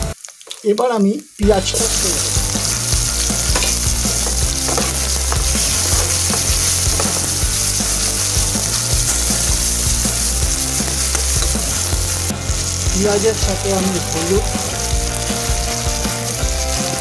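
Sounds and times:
onions sizzling in oil: 0.0s - 17.0s
spatula scraping and knocking pan: 2.4s - 12.8s.

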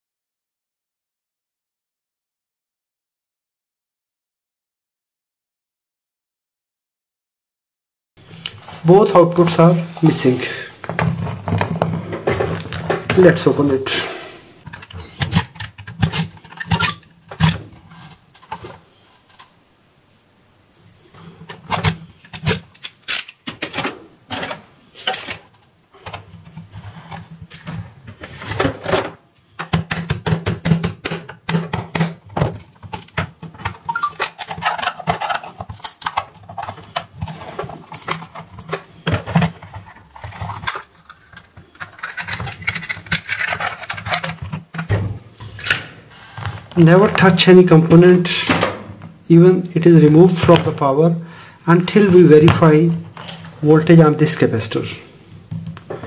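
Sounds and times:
plastic case being pried open: 14.7s - 17.8s, 27.4s - 45.0s.

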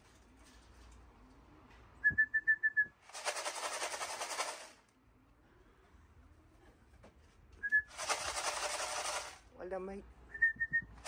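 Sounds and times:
person whistling short notes: 2.0s - 3.0s, 7.6s - 8.0s, 10.3s - 11.0s
rapid rattle: 3.1s - 4.8s, 7.9s - 9.5s.

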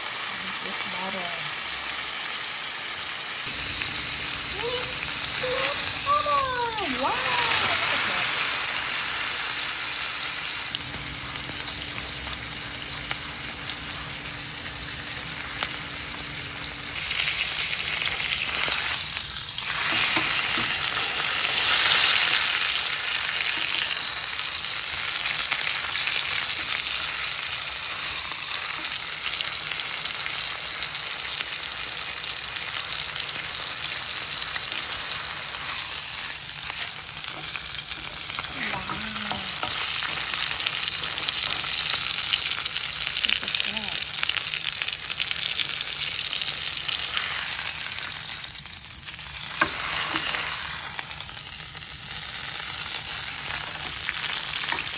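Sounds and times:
steak sizzling in a pan: 0.0s - 54.9s.

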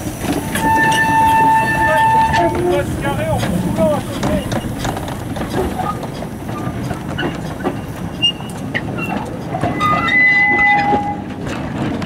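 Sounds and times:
wheels squealing on rails: 0.0s - 11.7s
wagon wheels rattling: 0.0s - 12.0s.

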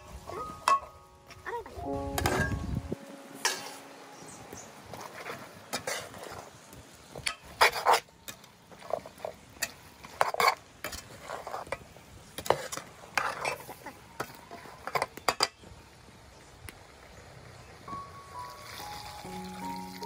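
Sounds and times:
metal ladle scraping a pot: 5.0s - 6.5s.

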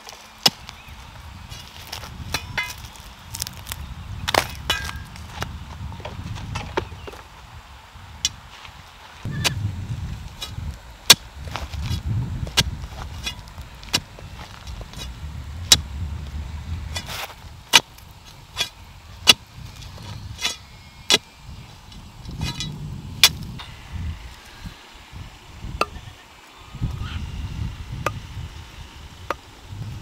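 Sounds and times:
low rumble: 11.4s - 17.7s.

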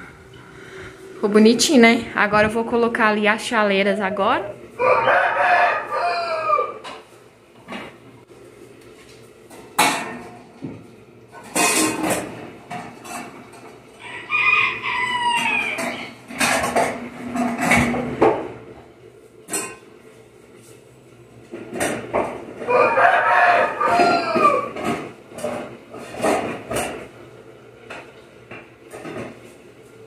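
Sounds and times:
rooster crowing: 4.7s - 6.9s, 14.0s - 16.2s, 22.6s - 24.8s.

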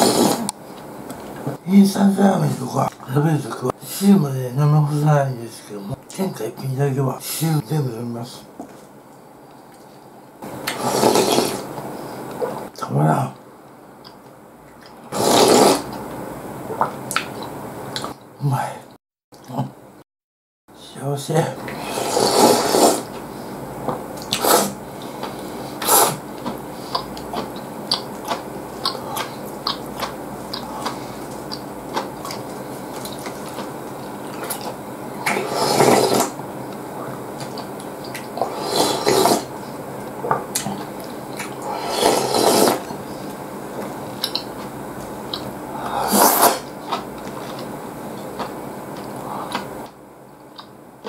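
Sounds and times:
loud soup slurping: 0.0s - 0.5s, 10.7s - 11.7s, 15.1s - 16.0s, 21.7s - 23.2s, 24.2s - 29.8s, 34.3s - 36.4s, 38.4s - 39.5s, 41.6s - 43.0s, 45.8s - 47.0s.

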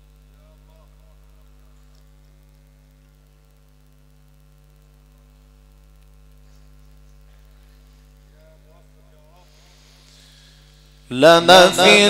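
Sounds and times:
electrical mains hum: 0.0s - 12.0s
faint hiss: 4.3s - 12.0s.

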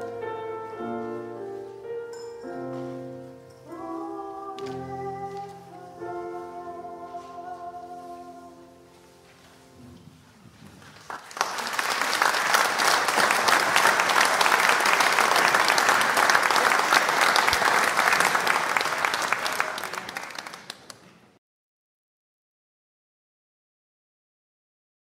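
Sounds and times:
audience applauding: 10.8s - 21.4s.

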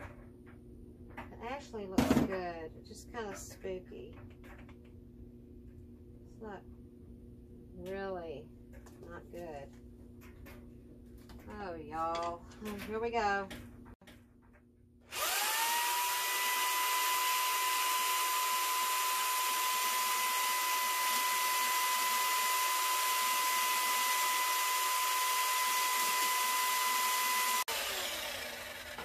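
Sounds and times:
jigsaw cutting wood: 15.1s - 29.0s.

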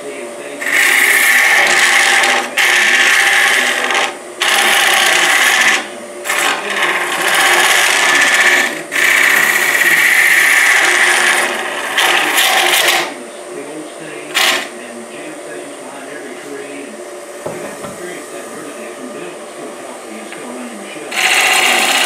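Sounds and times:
lathe tool scraping wood: 0.6s - 13.2s, 14.3s - 14.7s, 21.1s - 22.0s.

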